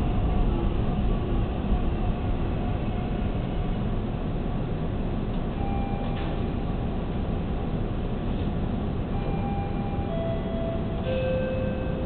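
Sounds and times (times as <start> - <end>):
subway train rumbling on rails: 0.0 - 12.0.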